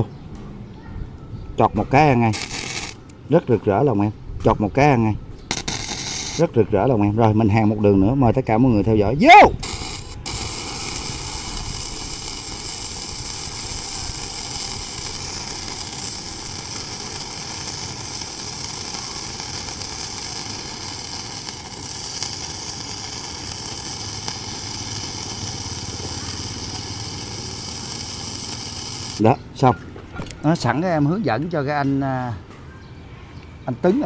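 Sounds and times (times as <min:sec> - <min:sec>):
welding arc sizzling: 0:02.1 - 0:03.2, 0:05.4 - 0:06.7, 0:09.3 - 0:29.3.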